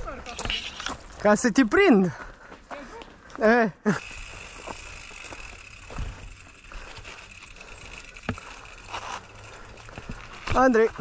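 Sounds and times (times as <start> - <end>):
bike tyres rumbling on dirt: 4.0 - 11.0.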